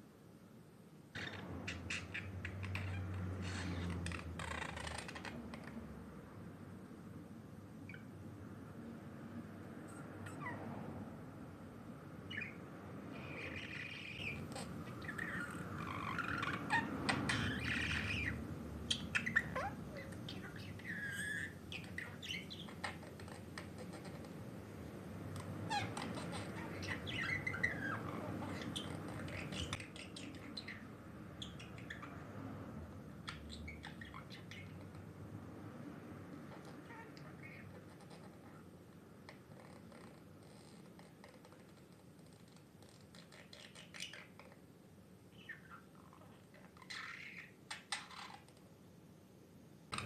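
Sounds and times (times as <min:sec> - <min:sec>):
budgerigar chirping and warbling: 0:01.1 - 0:05.8, 0:10.2 - 0:10.6, 0:12.2 - 0:12.6, 0:13.2 - 0:24.5, 0:25.4 - 0:32.3, 0:33.2 - 0:35.0, 0:36.5 - 0:38.6, 0:42.9 - 0:44.6, 0:45.3 - 0:48.5.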